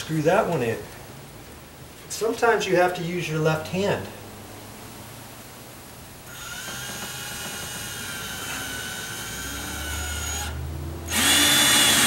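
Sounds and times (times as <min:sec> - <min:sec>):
power drill driving screw into metal: 0:06.3 - 0:12.0.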